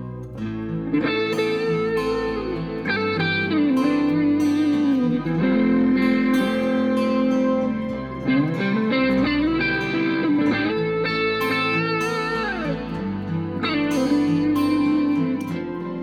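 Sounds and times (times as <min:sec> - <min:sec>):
guitar music with bending notes: 0:00.0 - 0:16.0.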